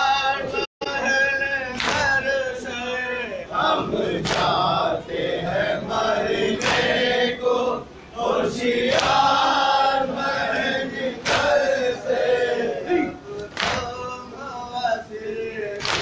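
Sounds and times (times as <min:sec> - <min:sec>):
men chanting in unison: 0:00.0 - 0:16.0
hands slapping chests: 0:04.2 - 0:04.6, 0:13.4 - 0:13.9, 0:15.8 - 0:16.0.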